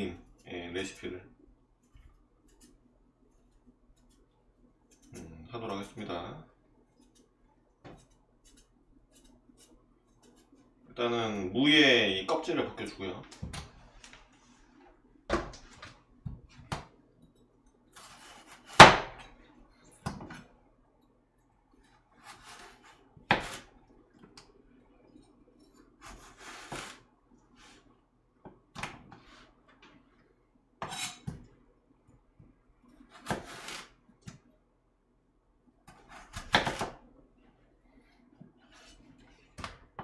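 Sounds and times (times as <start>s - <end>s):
knife rasping through radish: 18.0s - 18.8s, 21.9s - 23.8s, 26.0s - 27.8s, 33.1s - 33.9s.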